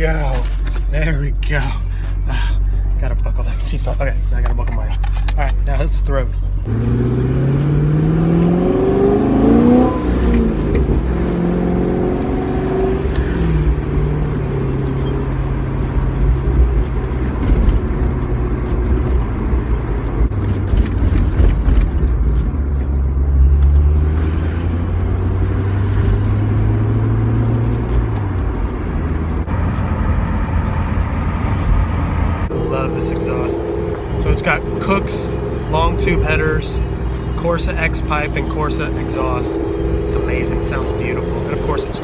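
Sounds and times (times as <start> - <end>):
car engine droning in cabin: 0.0 - 42.0.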